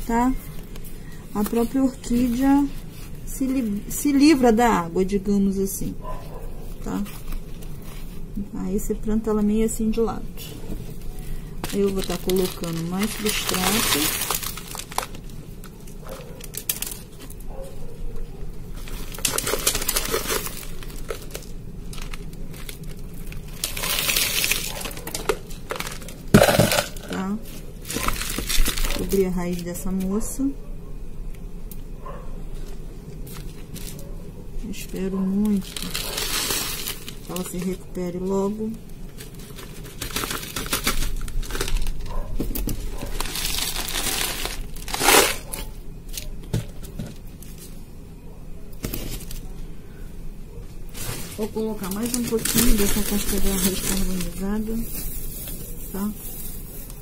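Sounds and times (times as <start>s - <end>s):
bark chips and gravel pouring: 11.2s - 15.3s, 18.7s - 29.7s, 35.4s - 37.8s, 42.7s - 46.3s, 50.9s - 57.0s.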